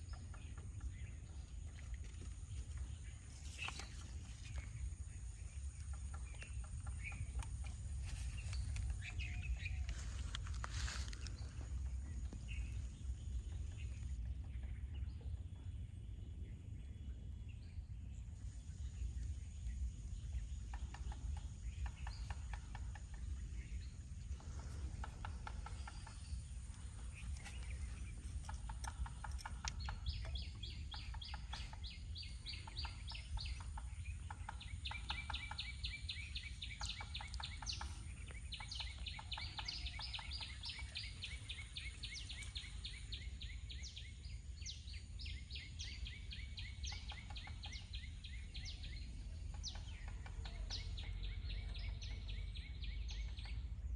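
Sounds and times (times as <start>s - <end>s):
low rumble: 0.0s - 53.8s
animals calling in ticking trills: 19.2s - 53.9s.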